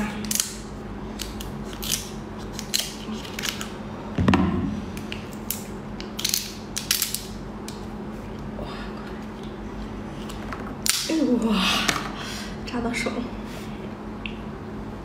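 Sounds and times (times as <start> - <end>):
crab shell cracking and snapping: 0.2 - 0.6, 1.2 - 3.7, 5.0 - 7.8.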